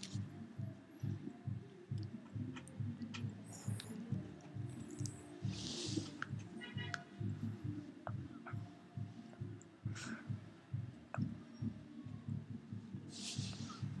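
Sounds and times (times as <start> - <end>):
teeth clicking: 1.9 - 7.0.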